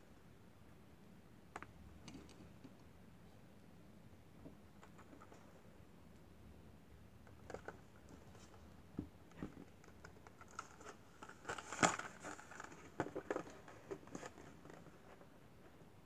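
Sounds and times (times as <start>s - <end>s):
plastic packaging crinkling: 9.8s - 14.8s.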